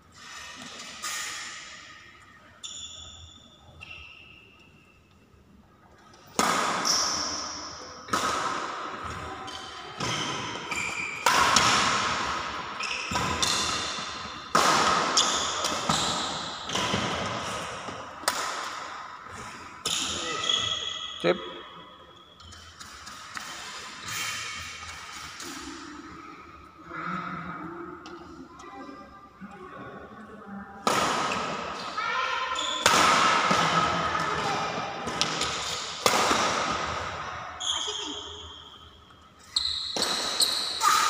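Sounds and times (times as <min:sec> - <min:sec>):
racket hitting shuttlecock: 0:06.3 - 0:07.3, 0:08.1 - 0:09.2, 0:10.0 - 0:19.0, 0:30.8 - 0:31.9, 0:32.8 - 0:37.2.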